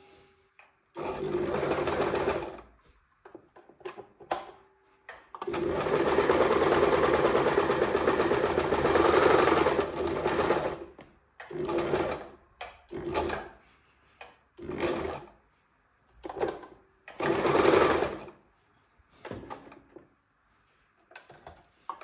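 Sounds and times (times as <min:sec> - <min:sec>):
sewing machine stitching: 0:00.9 - 0:02.7, 0:05.3 - 0:13.6, 0:14.6 - 0:15.4, 0:16.2 - 0:18.4.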